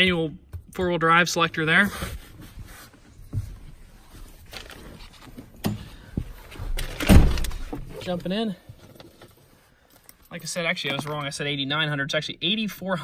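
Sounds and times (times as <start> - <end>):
rustling in truck cab: 1.7 - 9.7.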